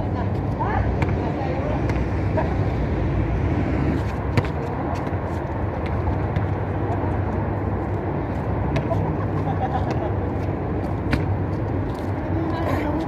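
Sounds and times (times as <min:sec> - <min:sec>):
basketball bouncing on concrete: 0:00.9 - 0:02.1, 0:04.3 - 0:07.1, 0:08.7 - 0:09.0, 0:10.8 - 0:11.5.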